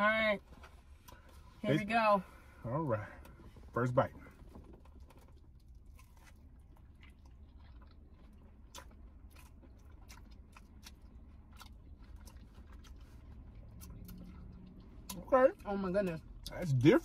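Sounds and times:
low steady hum: 0.0s - 17.0s
crunchy chewing: 4.6s - 15.2s.

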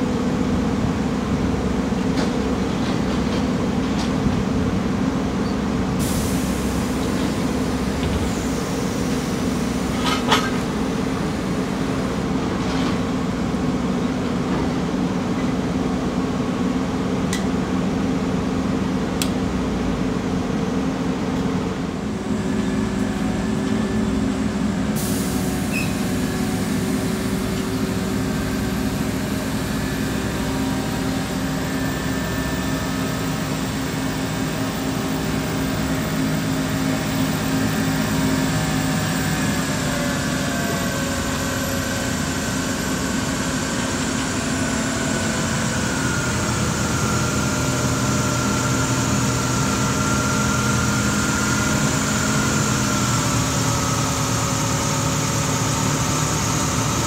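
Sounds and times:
diesel engine idling: 13.2s - 57.0s.

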